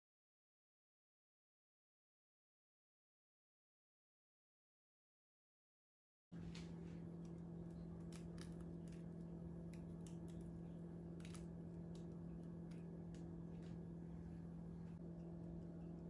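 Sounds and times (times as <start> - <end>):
low electrical hum: 6.4 - 16.0.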